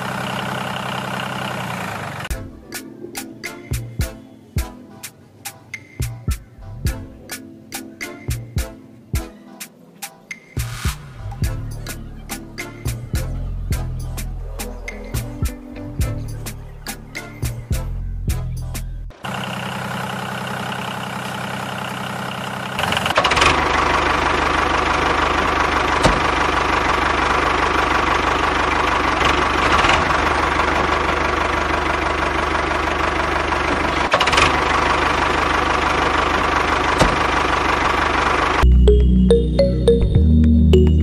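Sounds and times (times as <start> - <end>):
tractor engine running: 0.0 - 3.0, 19.1 - 41.0.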